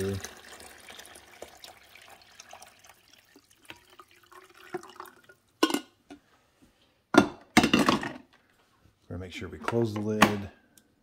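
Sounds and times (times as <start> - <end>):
water pouring and splashing: 0.0 - 5.4.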